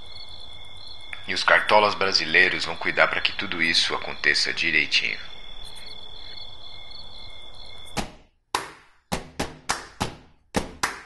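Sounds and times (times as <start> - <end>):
insects trilling: 0.0 - 8.1
hand claps: 8.6 - 11.0.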